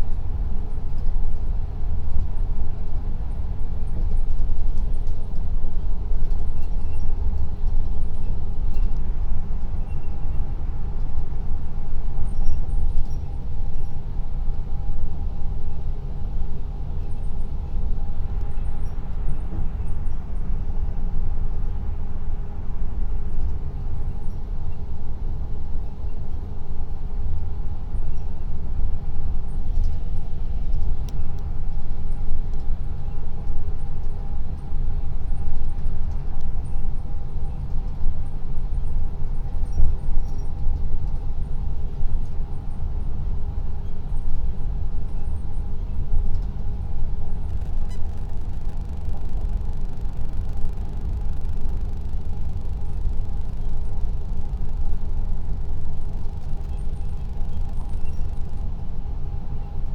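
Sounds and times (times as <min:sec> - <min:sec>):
faint steady hum: 0:00.0 - 0:59.9
car road and engine rumble: 0:43.0 - 0:59.9.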